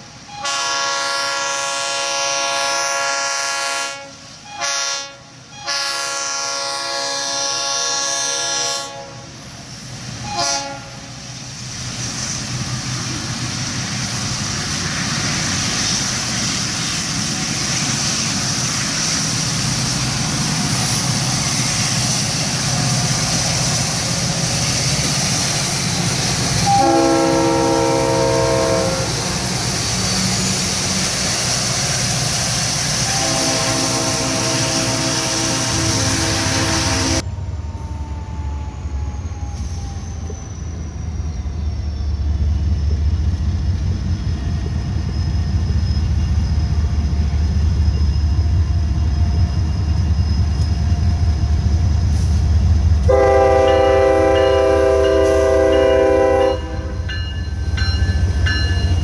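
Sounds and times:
freight train passing: 0.0s - 59.0s
train horn blasts: 0.3s - 9.4s, 10.2s - 11.2s, 26.6s - 29.3s, 33.0s - 37.3s, 53.0s - 57.2s
locomotive engine rumble: 5.2s - 59.0s.

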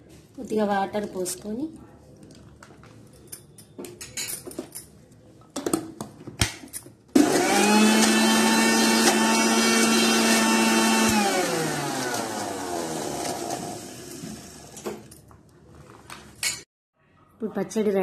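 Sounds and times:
mixer grinder motor whine: 7.2s - 15.1s.

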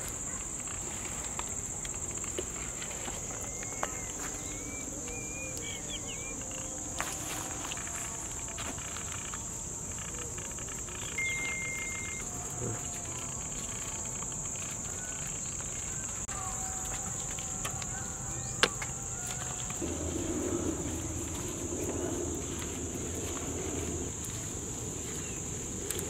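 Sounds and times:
crickets chirping: 0.0s - 26.0s
low rushing noise: 19.8s - 25.8s.

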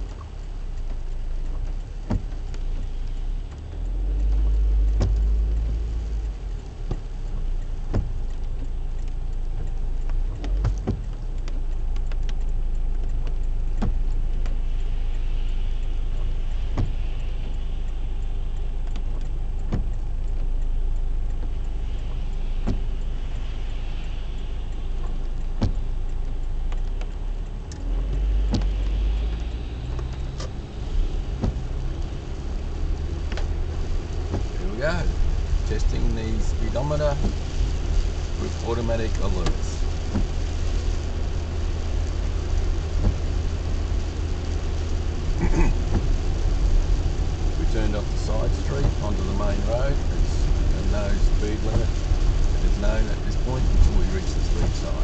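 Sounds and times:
car engine and tyres rumbling: 0.0s - 55.0s
rain and wet road noise: 0.0s - 55.0s
sharp clicks: 0.1s - 35.1s.

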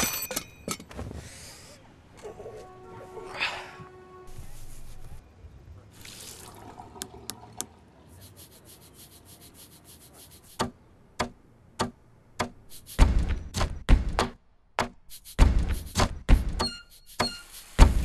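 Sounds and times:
thuds: 10.6s - 16.7s.

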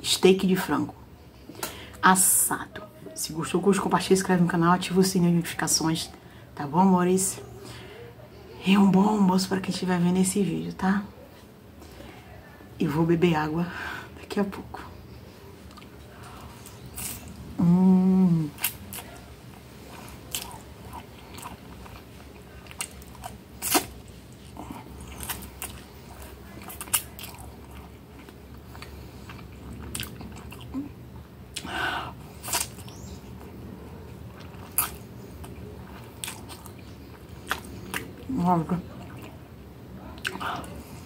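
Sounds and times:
person chewing food: 15.5s - 17.4s, 18.5s - 38.3s, 39.0s - 39.5s, 40.1s - 41.0s
person humming: 17.6s - 18.6s.

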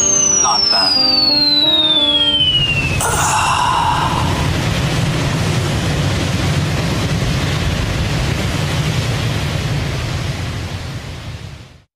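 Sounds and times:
heavy low hum: 0.6s - 6.4s
loud rushing noise: 2.4s - 11.3s.

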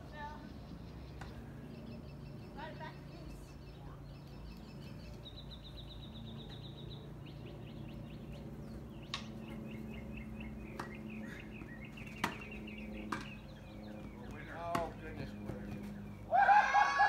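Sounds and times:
songbirds chirping: 0.0s - 17.0s
steady low hum: 0.0s - 17.0s.

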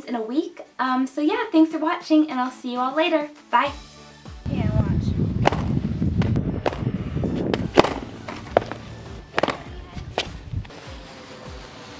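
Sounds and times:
background music: 0.0s - 11.9s
skateboard wheels rumbling on concrete: 5.1s - 10.7s
skateboard clacks: 5.4s - 5.8s, 6.6s - 6.9s, 7.6s - 10.4s.

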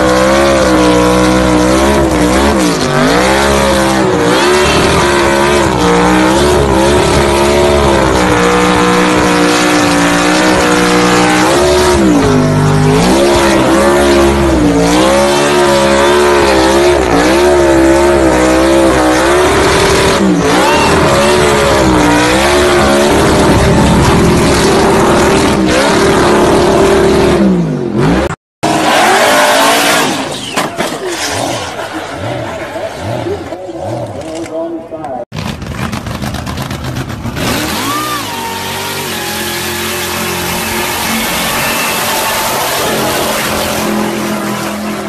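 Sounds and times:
car engine revving: 0.0s - 34.4s, 35.3s - 45.0s
tyres screeching: 28.6s - 33.4s, 37.4s - 45.0s
another car engine: 35.3s - 45.0s.

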